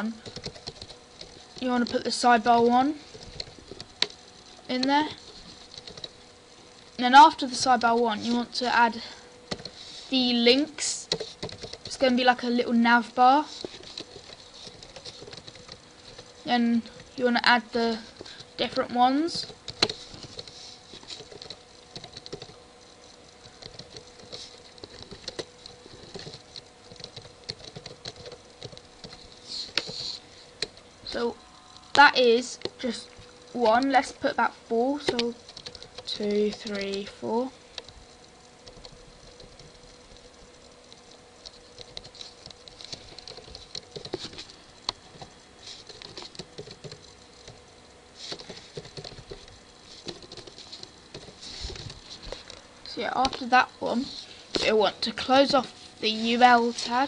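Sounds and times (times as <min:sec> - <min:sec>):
computer keyboard typing: 0:00.0 - 0:06.2, 0:09.5 - 0:12.6, 0:13.3 - 0:16.3, 0:16.9 - 0:22.6, 0:23.4 - 0:30.8, 0:33.5 - 0:37.2, 0:38.6 - 0:47.6, 0:48.3 - 0:55.6
faint steady hum: 0:00.0 - 0:57.0.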